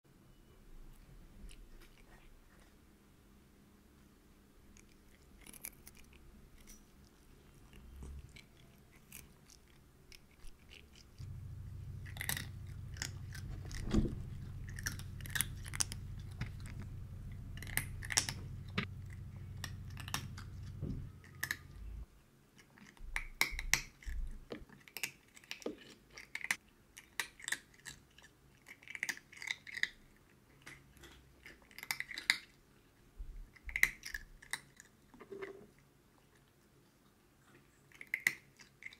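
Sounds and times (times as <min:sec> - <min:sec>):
cats crunching treats: 0:00.9 - 0:02.8, 0:04.6 - 0:35.2, 0:36.2 - 0:38.9
steady low hum: 0:07.3 - 0:22.1.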